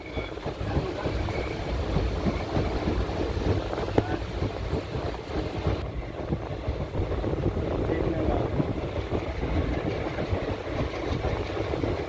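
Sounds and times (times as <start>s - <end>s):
train rumble and rattle: 0.0s - 12.0s
wind buffeting microphone: 0.0s - 12.0s.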